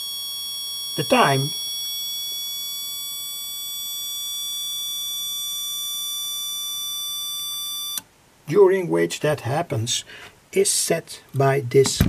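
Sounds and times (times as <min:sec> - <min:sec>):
high-pitched electronic beeper tone: 0:00.0 - 0:08.0.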